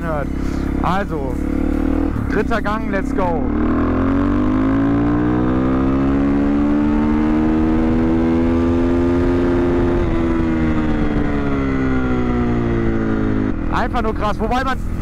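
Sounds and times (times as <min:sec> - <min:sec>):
motorcycle engine revving at full throttle: 0:00.0 - 0:15.0.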